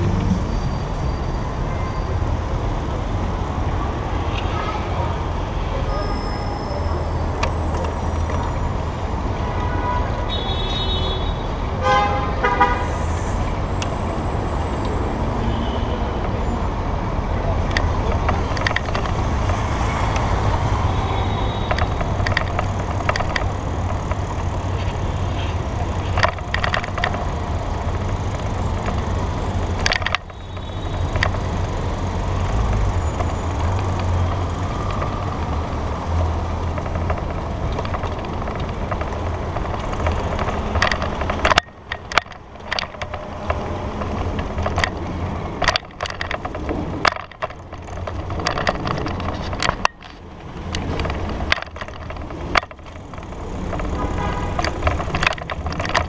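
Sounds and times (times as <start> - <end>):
city traffic: 0.0 - 56.0
car horn: 9.4 - 13.0, 53.9 - 54.8.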